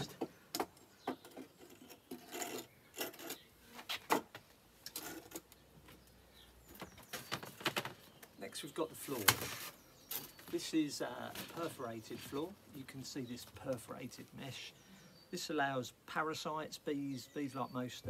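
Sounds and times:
wood scraping on paving: 0.0 - 6.0, 9.0 - 12.6.

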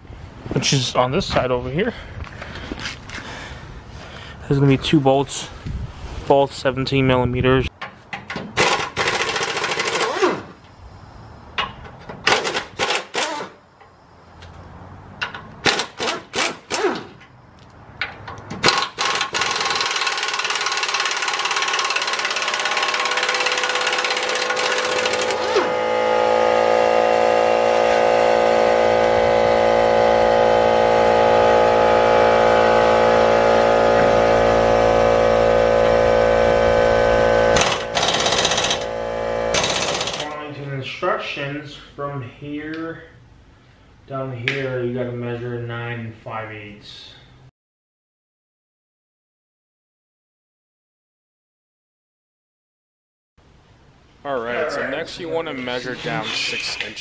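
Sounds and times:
pneumatic impact wrench rattling: 8.2 - 10.6, 11.6 - 13.6, 15.2 - 17.3, 18.1 - 25.9, 37.4 - 40.4
machine drone with low hum: 21.6 - 40.4.

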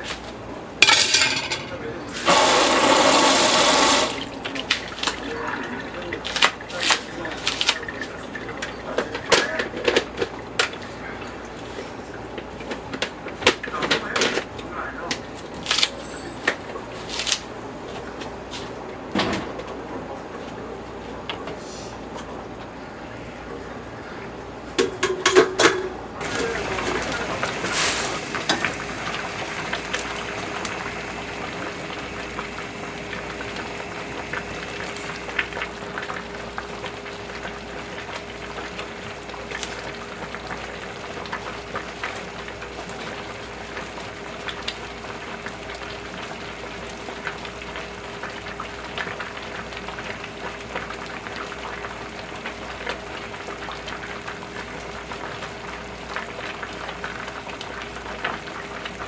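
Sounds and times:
soup boiling and bubbling: 2.1 - 13.7, 26.2 - 59.0.

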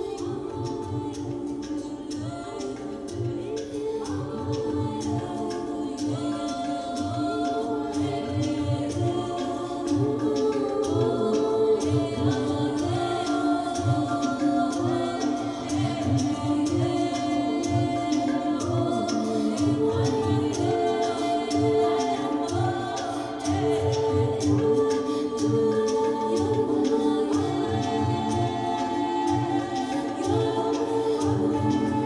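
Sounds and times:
choir singing held lines: 0.0 - 32.0.

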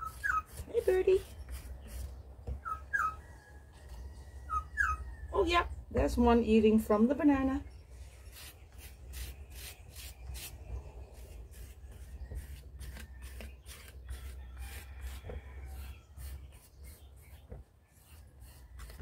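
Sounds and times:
tool scraping clay bowl: 0.0 - 3.1, 8.2 - 19.0.

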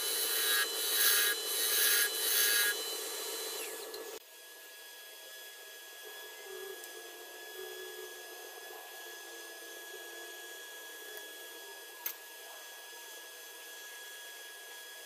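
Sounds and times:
lathe running: 0.0 - 4.2
tool scraping spinning wood: 0.0 - 4.2
faint motor hum with whine: 0.0 - 15.0.

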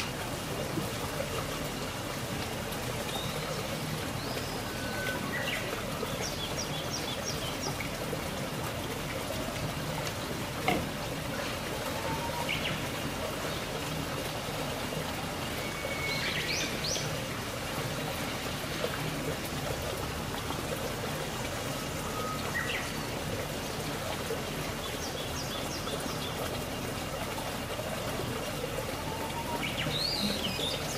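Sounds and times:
small birds chirping: 29.4 - 30.9.

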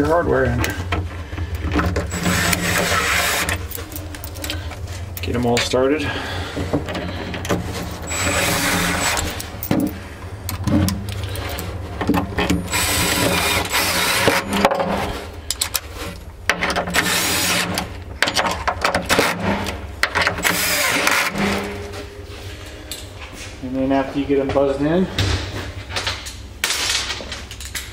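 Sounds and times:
handling clicks and knocks: 0.0 - 5.8, 9.1 - 12.7, 17.8 - 20.5
cordless drill driving bolts: 1.8 - 3.8, 6.9 - 9.9, 12.4 - 14.9, 16.7 - 19.4, 20.0 - 21.6.

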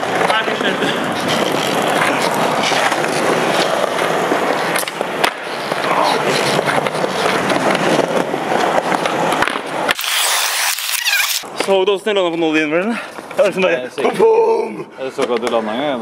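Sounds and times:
skateboard clacks: 0.0 - 10.0
skateboard wheels rolling on pavement: 0.0 - 16.0.

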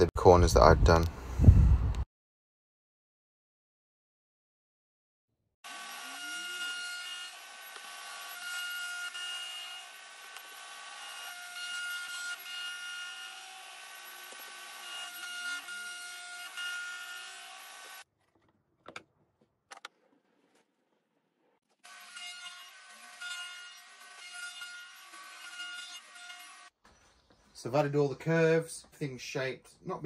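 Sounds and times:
router bit cutting wood: 5.6 - 18.1, 21.7 - 26.7
router motor whine: 5.6 - 18.1, 21.8 - 26.7.

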